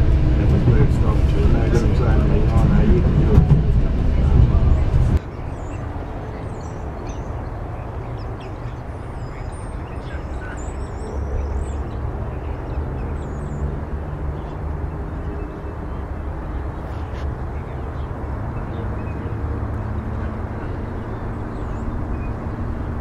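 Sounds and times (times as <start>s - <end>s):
steady low rumble: 0.0s - 8.5s
birds chirping and whistling: 5.3s - 13.8s.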